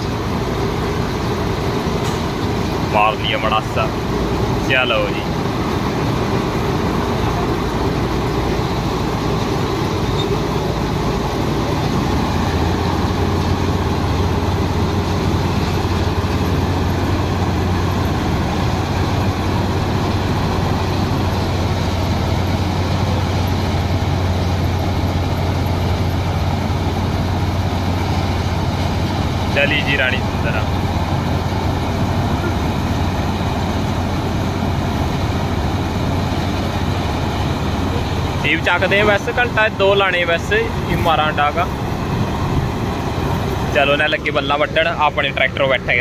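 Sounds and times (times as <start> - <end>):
combine harvester running: 0.0 - 46.0.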